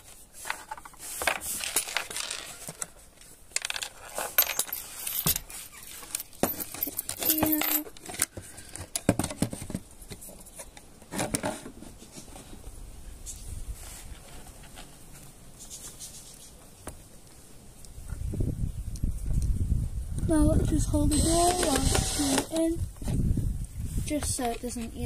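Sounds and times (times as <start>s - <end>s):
metal screws clinking: 3.6s - 8.2s.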